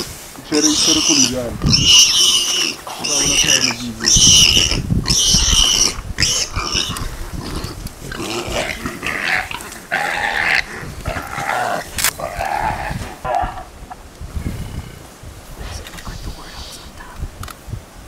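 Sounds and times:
piglet squealing: 0:00.6 - 0:13.0
animal growling: 0:00.7 - 0:13.8.

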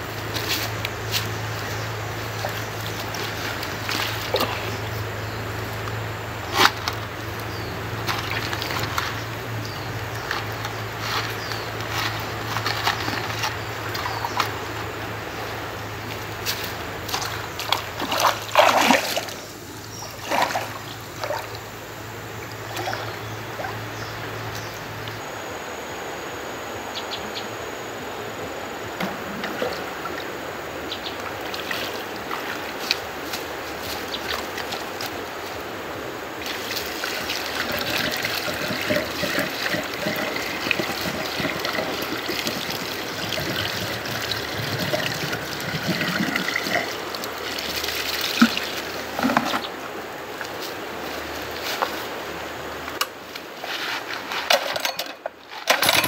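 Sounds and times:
water splashing from wading: 0:00.0 - 0:21.8, 0:22.4 - 0:24.4, 0:36.2 - 0:50.5
water trickling and pouring: 0:16.5 - 0:21.6, 0:36.4 - 0:49.7.

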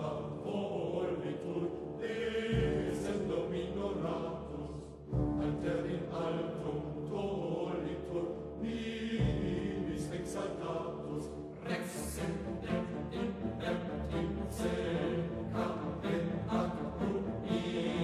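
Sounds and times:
choir chanting: 0:00.0 - 0:18.0.

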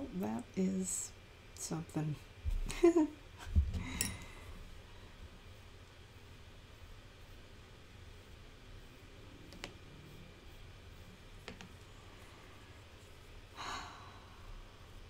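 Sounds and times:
sculpting tools clicking on table: 0:09.5 - 0:09.8, 0:11.4 - 0:11.8.

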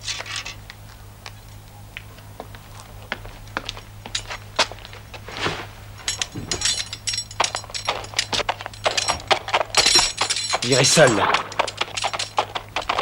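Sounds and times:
steady low hum: 0:00.0 - 0:13.0
sharp clicks and clinks: 0:06.1 - 0:13.0.

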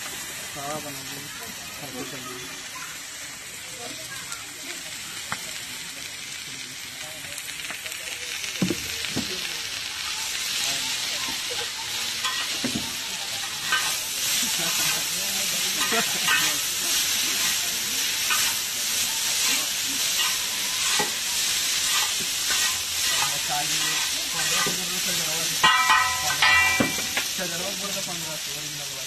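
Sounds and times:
noodles sizzling on griddle: 0:00.0 - 0:29.0
metal spatula scraping iron: 0:20.1 - 0:26.8
ringing metal strikes: 0:25.6 - 0:27.3.

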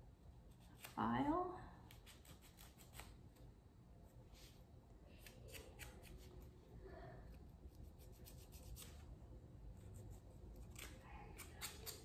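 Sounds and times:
nail file scraping nails: 0:01.9 - 0:03.2, 0:07.7 - 0:09.1, 0:09.8 - 0:12.0.

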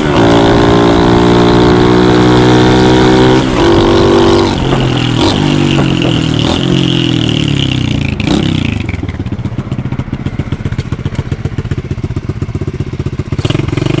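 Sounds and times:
motorcycle engine idling and revving: 0:00.0 - 0:14.0
engine knock: 0:03.6 - 0:14.0.

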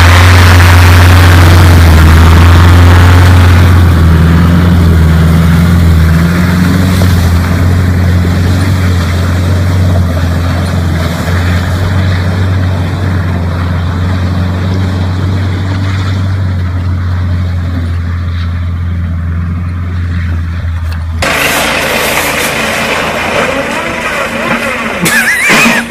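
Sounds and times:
vehicle engine running: 0:00.0 - 0:25.9
tyres churning slush: 0:04.8 - 0:15.6, 0:21.2 - 0:25.9.

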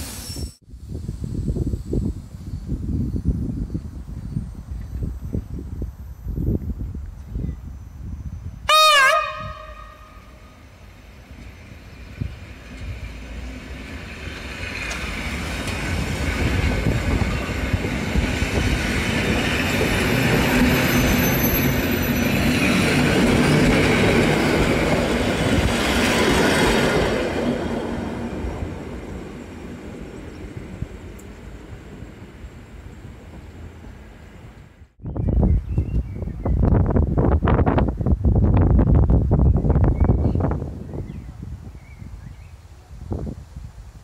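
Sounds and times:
train passing close by: 0:00.0 - 0:35.0
train horn blast: 0:08.6 - 0:10.6.

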